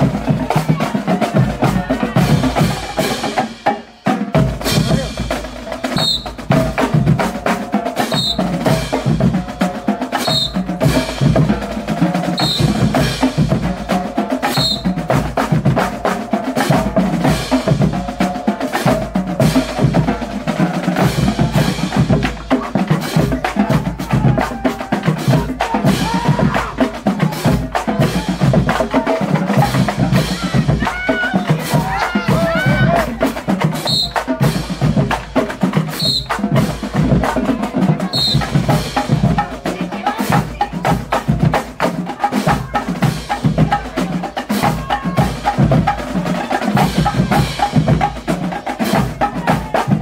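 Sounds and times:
bass drums: 0.0s - 50.0s
snare drums: 0.0s - 50.0s.

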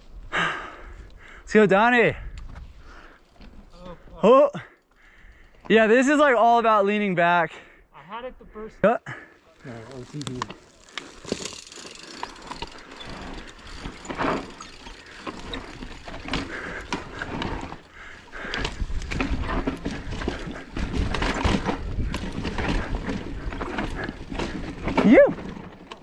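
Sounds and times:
bike rattling with clicks: 2.3s - 6.6s, 9.6s - 26.0s
tyres crunching over rocks: 9.6s - 26.0s.

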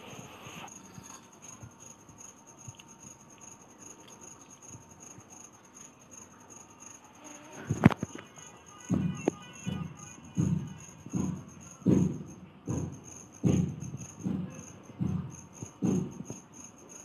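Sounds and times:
soft eating sounds: 0.7s - 6.5s
loud knock: 8.8s - 16.4s.

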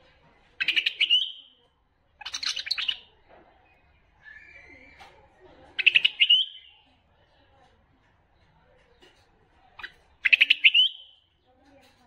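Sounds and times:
bulbul chattering song: 0.6s - 1.6s, 2.2s - 3.1s, 5.8s - 6.9s, 9.8s - 11.3s.

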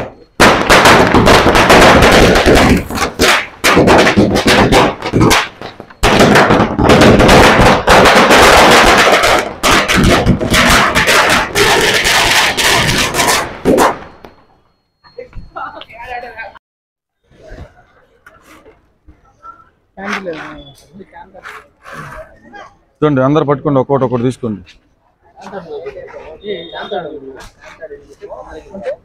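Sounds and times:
firecrackers crackling: 0.0s - 14.6s.

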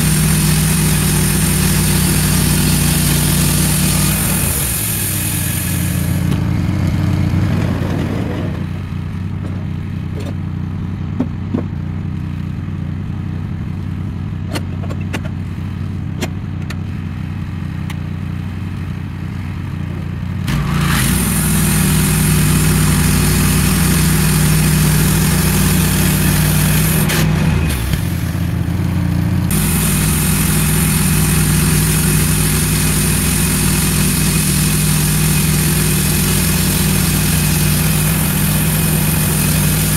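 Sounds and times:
band saw cutting wood: 0.0s - 6.5s, 20.5s - 28.5s, 29.5s - 39.9s
sawmill engine running: 0.0s - 10.2s, 18.6s - 39.9s.

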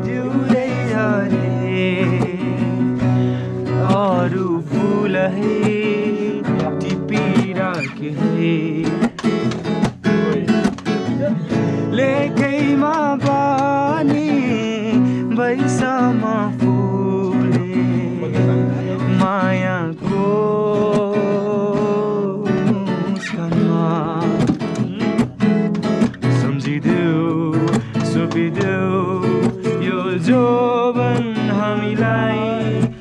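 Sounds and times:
acoustic guitar strumming: 0.0s - 33.0s
man singing: 0.0s - 33.0s.

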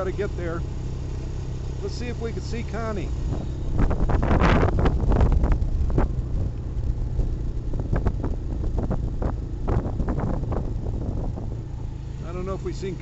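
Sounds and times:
atv engine running: 0.0s - 13.0s
wind buffeting microphone: 3.2s - 11.8s.

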